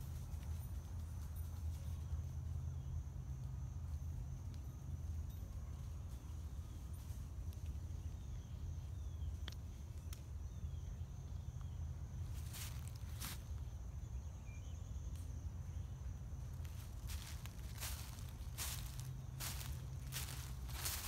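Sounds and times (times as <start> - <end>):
footsteps in dry leaves: 12.3 - 13.6, 16.5 - 21.0.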